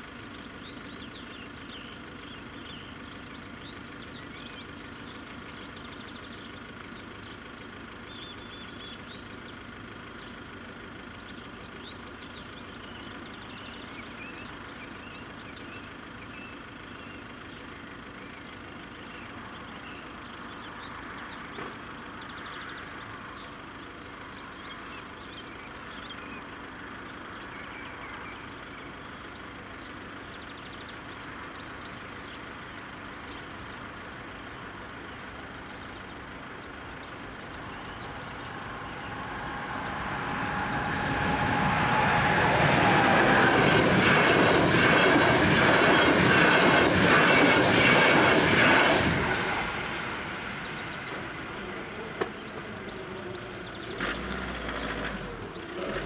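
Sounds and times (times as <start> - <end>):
train passing at speed: 37.5 - 52.4.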